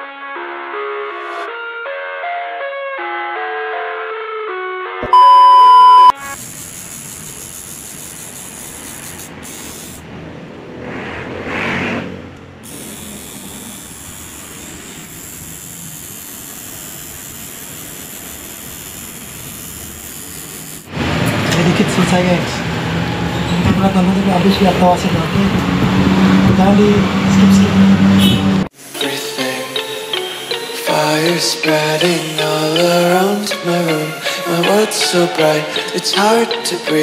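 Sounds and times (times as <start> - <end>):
loud electronic beep: 5.0 - 6.4
tattoo machine buzzing: 5.7 - 10.0, 12.6 - 21.0, 28.7 - 33.1.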